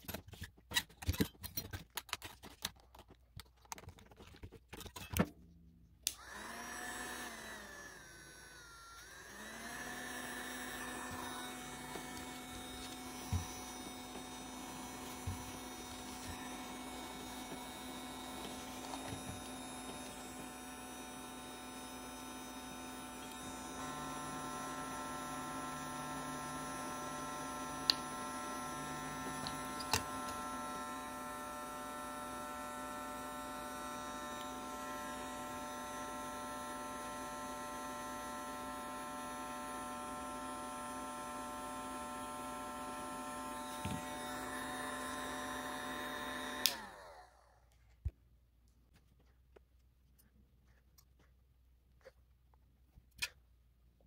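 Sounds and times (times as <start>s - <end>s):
hot air gun humming: 6.1s - 47.1s.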